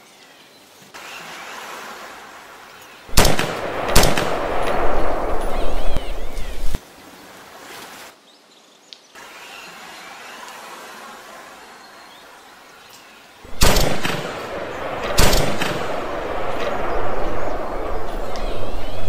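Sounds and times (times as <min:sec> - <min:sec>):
gunshot cracks: 0:03.1 - 0:06.8, 0:13.5 - 0:19.0.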